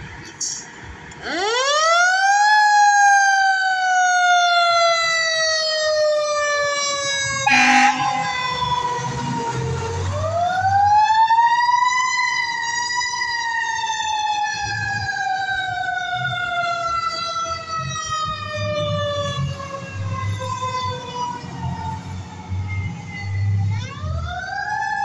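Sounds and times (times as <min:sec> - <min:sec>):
mechanical siren wailing: 0:01.2 - 0:25.0
truck engine rumbling: 0:07.2 - 0:11.1.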